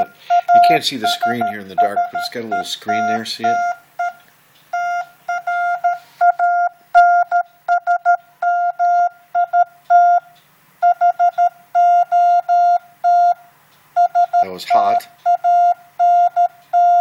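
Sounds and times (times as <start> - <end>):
morse code beeps: 0.0 - 13.4, 14.0 - 17.0.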